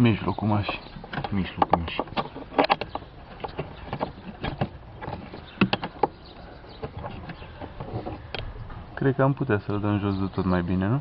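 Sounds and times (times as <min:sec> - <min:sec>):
plastic and metal parts clicking: 0:00.6 - 0:08.5.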